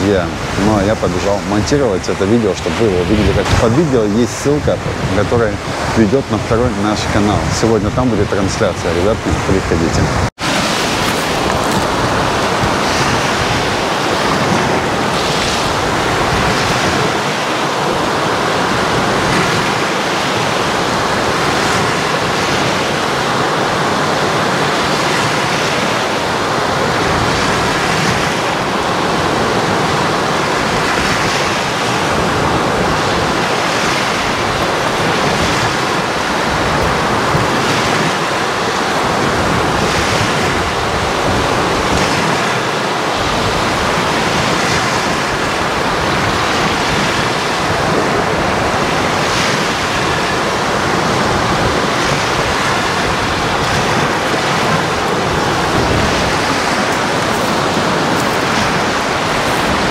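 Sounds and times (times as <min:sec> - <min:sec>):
surf breaking on shore: 0:00.0 - 0:59.9.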